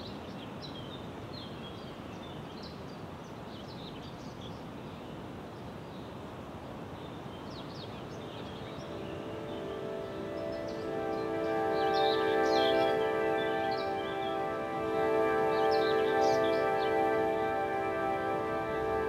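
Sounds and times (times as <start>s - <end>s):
songbirds chirping and whistling: 7.5s - 19.0s
music: 8.4s - 19.0s.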